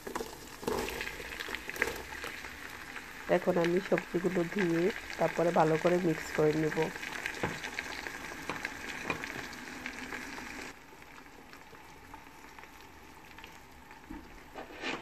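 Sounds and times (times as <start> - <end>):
vegetables sizzling in hot oil: 0.0 - 14.8
wooden spatula stirring and scraping: 14.5 - 15.0.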